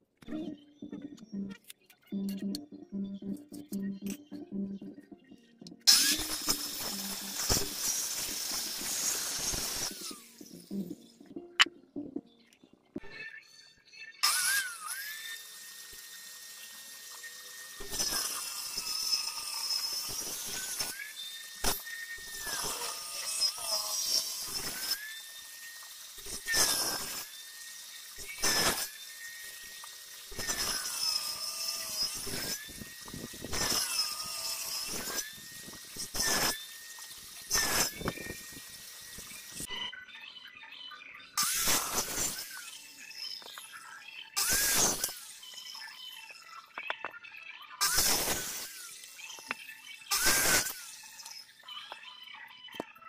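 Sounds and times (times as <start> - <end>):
circular saw whining: 0.2 - 11.7, 13.0 - 40.2, 41.2 - 47.2, 47.8 - 52.1
saw cutting wood block: 5.8 - 11.1, 14.2 - 39.8, 41.4 - 47.1, 47.8 - 52.0.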